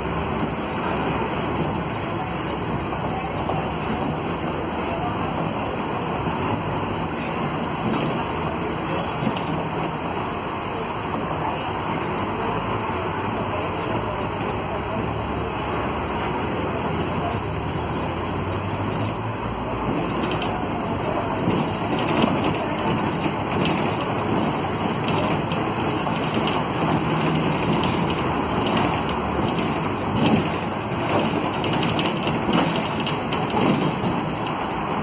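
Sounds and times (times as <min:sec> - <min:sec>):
bus diesel engine drone: 0:00.0 - 0:35.0
road noise: 0:00.0 - 0:35.0
short rattles and knocks: 0:21.2 - 0:34.8.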